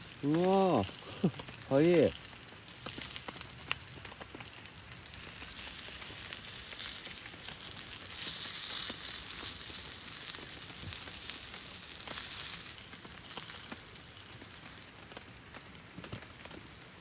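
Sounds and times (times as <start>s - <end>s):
sausages sizzling in oil: 0.0s - 17.0s.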